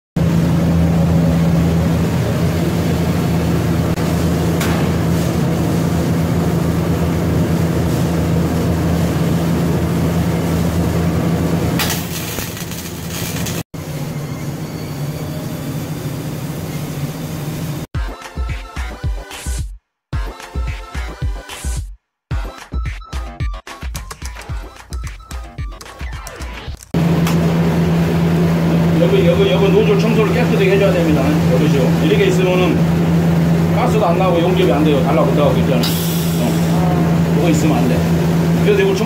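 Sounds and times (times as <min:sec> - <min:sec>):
machine hum with low drone: 0:00.2 - 0:17.9, 0:27.0 - 0:39.0
rhythmic music: 0:18.0 - 0:26.9.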